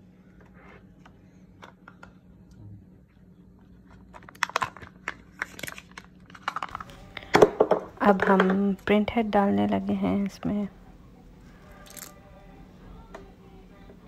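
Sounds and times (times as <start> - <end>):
foil packet tearing and crinkling: 4.0 - 7.0.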